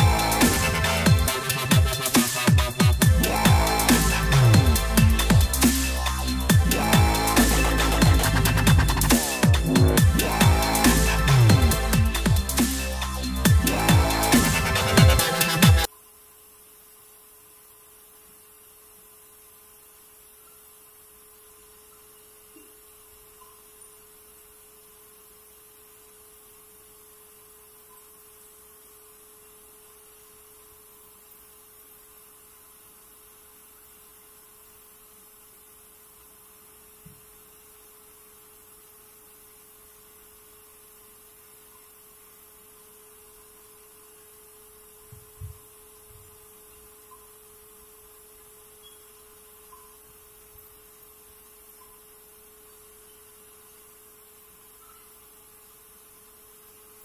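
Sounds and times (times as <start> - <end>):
hiss: 0.0 - 15.9
faint electrical hum: 0.0 - 57.0
soft low thumps: 45.1 - 46.4.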